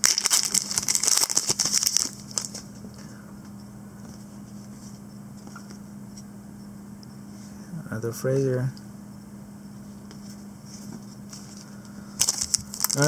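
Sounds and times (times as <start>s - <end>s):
foil wrapper crinkling and tearing: 0.0s - 2.7s, 11.3s - 13.0s
faint steady hum: 0.0s - 13.0s.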